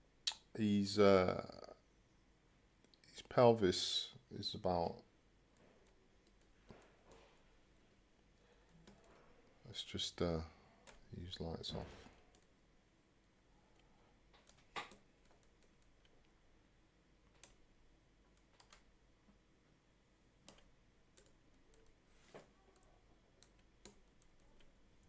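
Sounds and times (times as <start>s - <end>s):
mouse and keyboard clicks: 14.3s - 16.3s, 20.4s - 24.7s.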